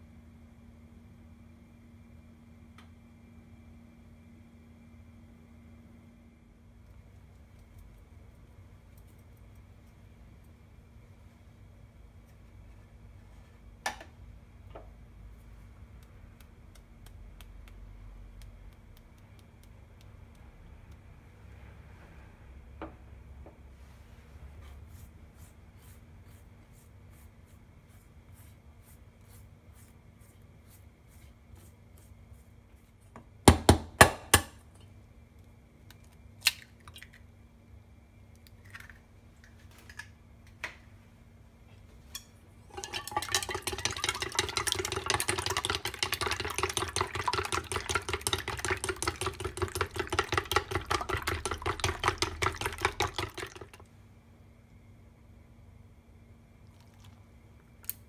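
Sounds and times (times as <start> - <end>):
egg beaten in metal bowl: 42.7 - 53.8.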